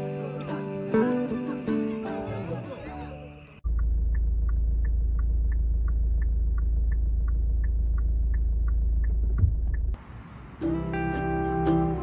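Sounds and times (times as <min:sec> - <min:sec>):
car engine idling: 0:03.3 - 0:10.0
turn signal ticking: 0:03.6 - 0:10.0.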